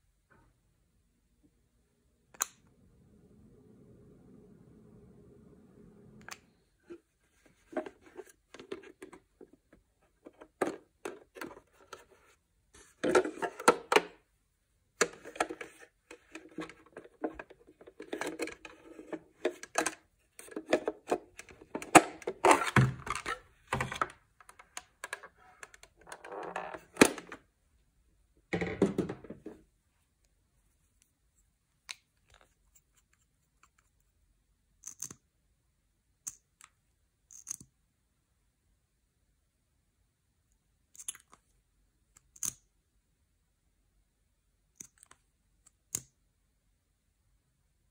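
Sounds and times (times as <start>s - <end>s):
plastic toy parts clicking: 34.8s - 35.2s, 37.3s - 37.7s, 42.1s - 42.6s.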